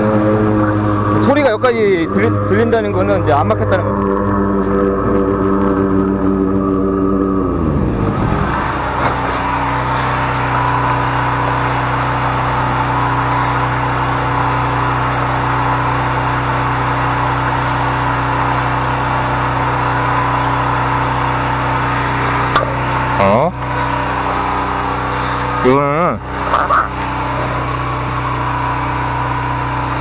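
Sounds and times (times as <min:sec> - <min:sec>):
engine running: 0:00.0 - 0:30.0.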